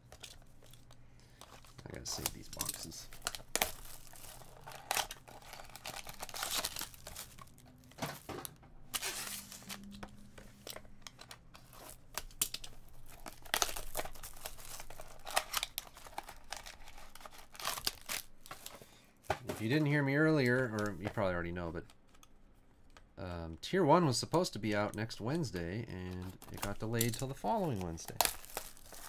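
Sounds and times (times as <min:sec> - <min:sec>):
cellophane crinkling and tearing: 0:00.0 - 0:18.9, 0:25.2 - 0:29.0.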